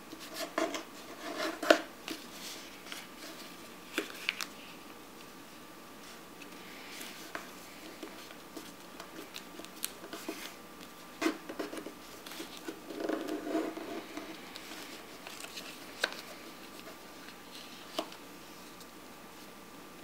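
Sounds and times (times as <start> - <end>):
paper being folded and creased: 0.2 - 4.7, 6.8 - 18.2
paper rustling: 0.2 - 4.7, 6.0 - 18.8.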